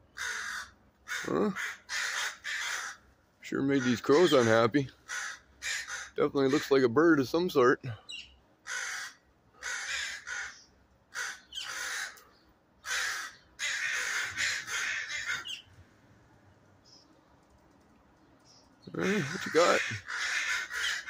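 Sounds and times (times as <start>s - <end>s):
crows cawing: 0.1s - 6.8s, 8.6s - 15.7s, 18.9s - 21.0s.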